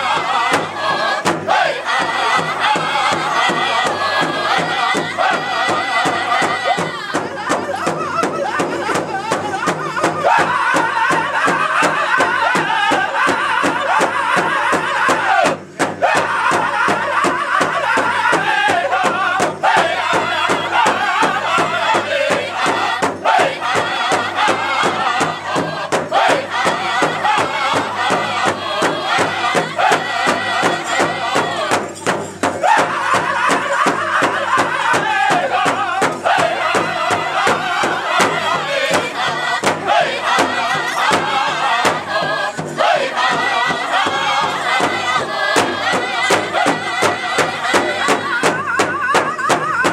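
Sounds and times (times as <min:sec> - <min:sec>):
group singing together: 0:00.0 - 0:49.9
large drum steady beat: 0:00.0 - 0:49.9.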